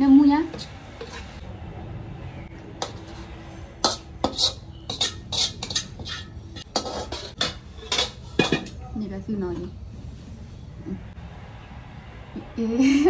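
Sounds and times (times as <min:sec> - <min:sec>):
metal spatula scraping wok: 0:00.4 - 0:01.5, 0:02.8 - 0:08.9.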